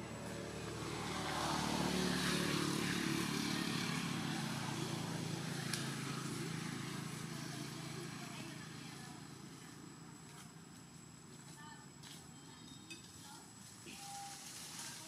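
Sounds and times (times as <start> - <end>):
vehicle engine passing by: 0.0 - 9.8.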